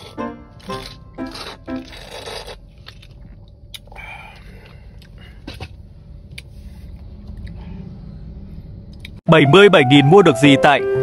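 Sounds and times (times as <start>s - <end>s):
faint chewing: 0.0s - 6.5s
low steady hum: 0.0s - 9.2s.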